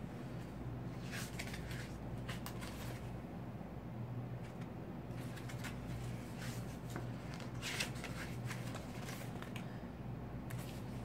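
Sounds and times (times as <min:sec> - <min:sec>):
book pages rustling: 0:00.4 - 0:03.2, 0:04.4 - 0:09.8, 0:10.5 - 0:11.0.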